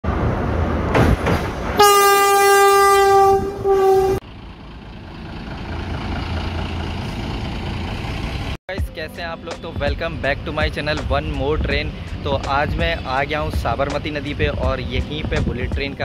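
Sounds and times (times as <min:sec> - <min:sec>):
train horn blasts: 0:01.8 - 0:04.2.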